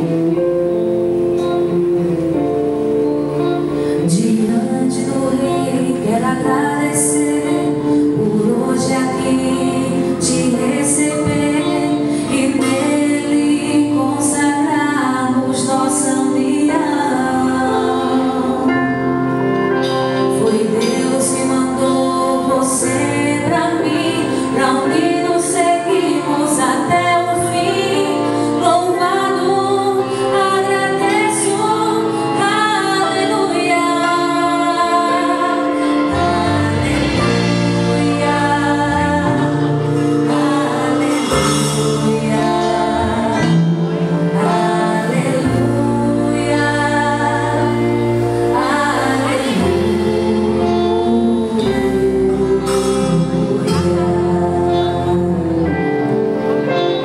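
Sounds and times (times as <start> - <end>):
live band playing: 0.0 - 57.0
woman singing: 3.9 - 57.0
cymbal strikes: 41.0 - 42.6.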